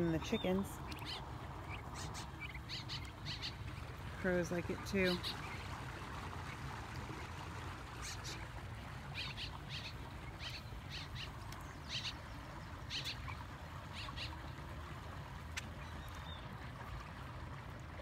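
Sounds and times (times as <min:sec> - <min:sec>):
turkey poults peeping: 0:00.9 - 0:03.9, 0:09.1 - 0:12.2, 0:12.8 - 0:14.4.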